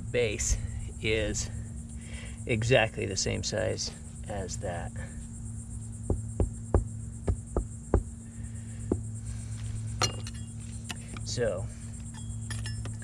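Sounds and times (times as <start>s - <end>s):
sharp metallic clink: 10.0s - 10.6s, 12.1s - 13.0s.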